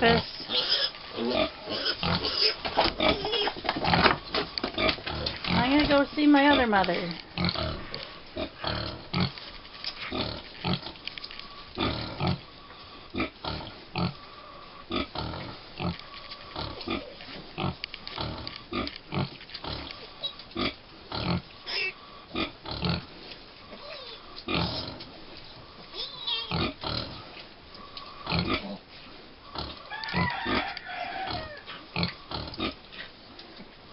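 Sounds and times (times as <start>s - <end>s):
piglets squeaking: 0.0s - 4.0s, 14.9s - 23.0s, 23.8s - 24.9s, 26.0s - 26.9s.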